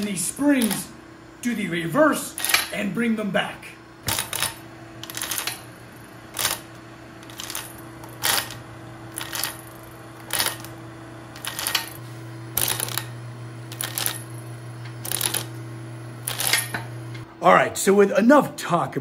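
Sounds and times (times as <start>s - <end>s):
electric motor humming: 4.0s - 17.2s.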